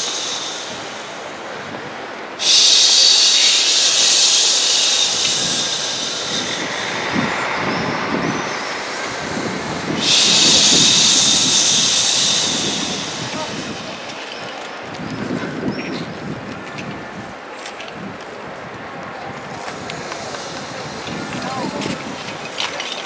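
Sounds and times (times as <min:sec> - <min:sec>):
low breathy sound: 0:00.0 - 0:14.6, 0:19.4 - 0:22.9.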